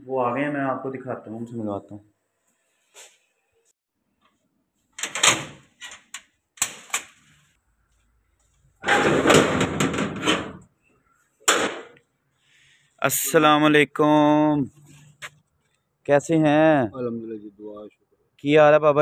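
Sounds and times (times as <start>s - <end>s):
door rattling scrape: 5.0s - 7.4s, 8.8s - 10.7s
door knocks and rattles: 8.8s - 10.6s.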